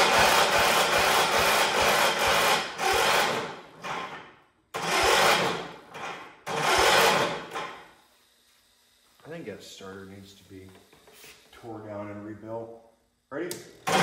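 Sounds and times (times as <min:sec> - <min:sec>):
electric starter cranking engine: 0:00.0 - 0:08.0, 0:13.8 - 0:14.0.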